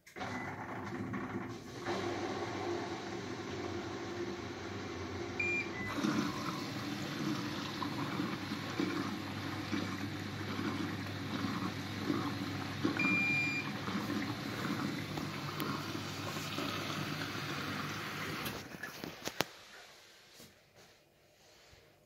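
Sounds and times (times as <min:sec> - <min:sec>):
washing machine beeps: 0:00.1 - 0:01.1, 0:05.0 - 0:16.1
washing machine motor hum: 0:00.1 - 0:19.3
water sloshing in washing machine: 0:00.2 - 0:19.2.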